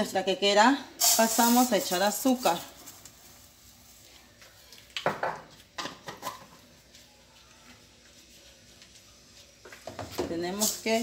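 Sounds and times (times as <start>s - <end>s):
faint steady hiss: 0.8s - 11.0s
kitchenware knocks and clinks: 5.0s - 6.5s.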